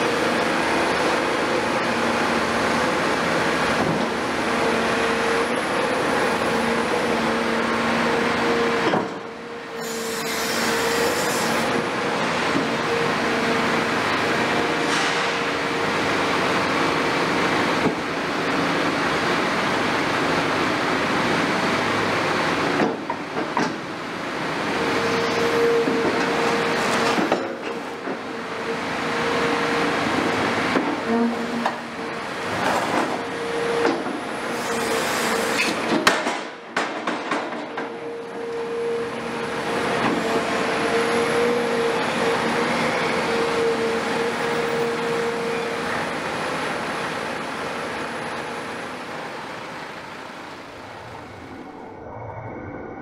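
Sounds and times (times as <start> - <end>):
excavator engine and hydraulics: 0.0 - 53.0
steady whine: 50.4 - 53.0.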